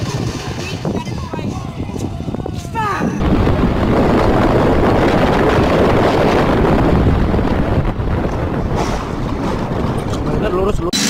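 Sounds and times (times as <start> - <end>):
wind buffeting microphone: 0.0 - 11.0
vehicle noise: 3.2 - 11.0.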